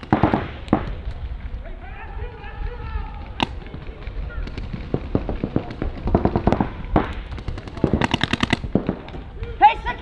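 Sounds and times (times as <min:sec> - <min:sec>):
paintball markers firing: 0:00.0 - 0:01.2, 0:03.2 - 0:09.3.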